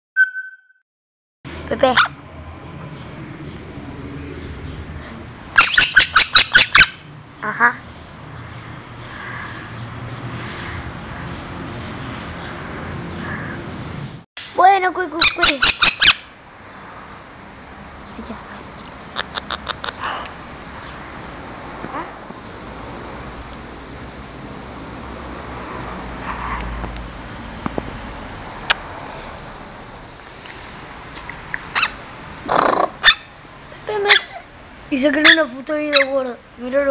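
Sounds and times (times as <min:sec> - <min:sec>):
parakeet screeching: 0:05.6 - 0:07.0, 0:15.2 - 0:16.3, 0:31.7 - 0:33.3, 0:35.2 - 0:36.3.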